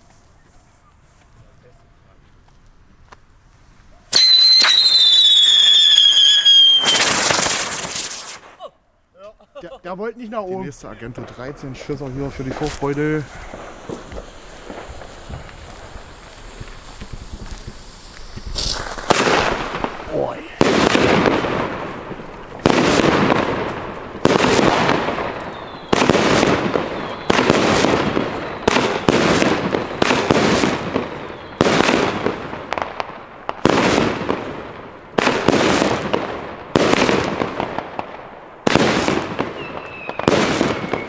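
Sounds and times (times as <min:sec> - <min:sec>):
firework launch bangs: 0:04.1 - 0:08.6, 0:11.1 - 0:34.6, 0:35.2 - 0:41.0
firework hiss: 0:04.2 - 0:08.6, 0:10.8 - 0:34.5.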